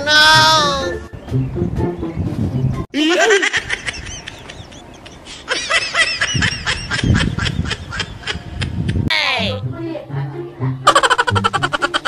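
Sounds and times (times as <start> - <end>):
sped-up laughing sound effect: 3.0 - 9.1, 10.8 - 12.0.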